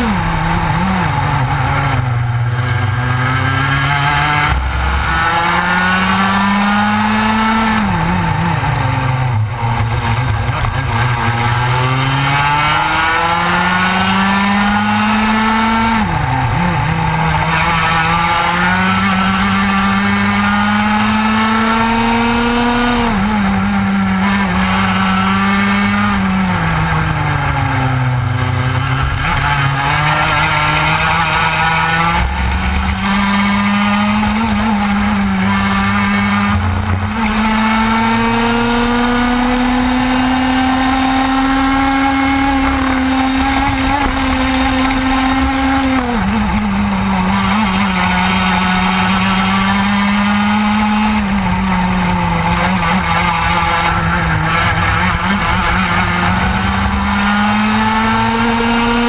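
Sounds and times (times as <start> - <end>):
kart engine revving: 0.0 - 59.0.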